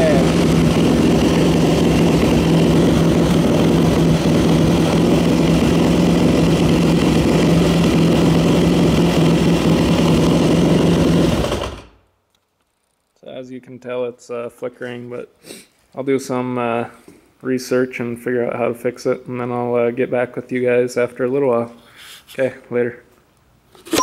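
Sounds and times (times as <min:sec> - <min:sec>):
motorcycle engine idling: 0:00.0 - 0:12.0.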